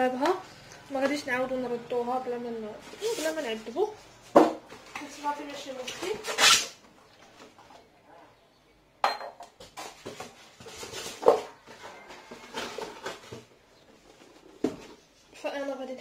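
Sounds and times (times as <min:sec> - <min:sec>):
glass bowl knocking on stone: 0:09.0 - 0:09.4.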